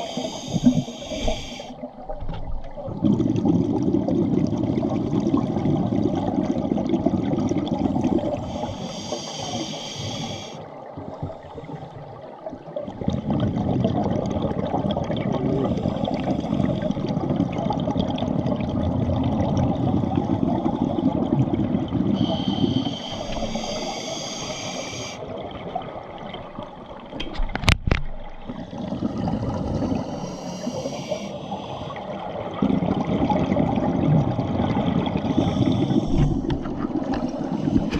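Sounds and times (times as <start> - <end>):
hissing inhalations: 0.0 - 1.8, 8.4 - 10.6, 22.2 - 25.2, 29.9 - 32.0, 35.3 - 36.6.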